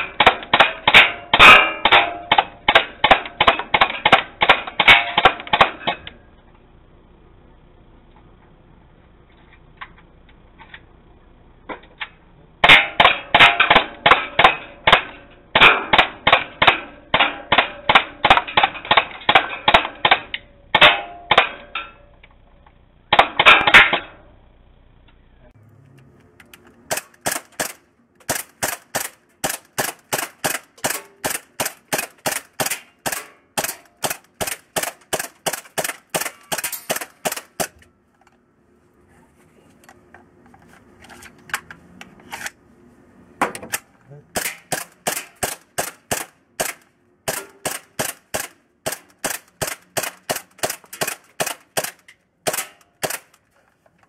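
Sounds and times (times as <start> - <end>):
airsoft pistol shots: 0.0 - 6.0, 12.6 - 21.6, 23.1 - 24.1, 26.9 - 37.8, 44.3 - 53.3.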